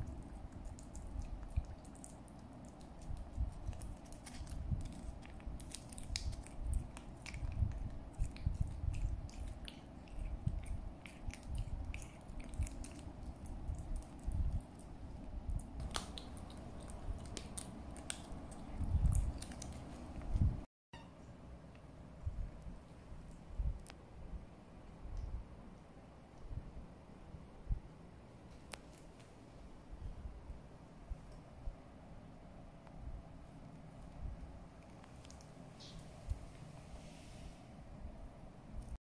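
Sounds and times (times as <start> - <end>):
kitten licking wet smacking: 0.0 - 14.9.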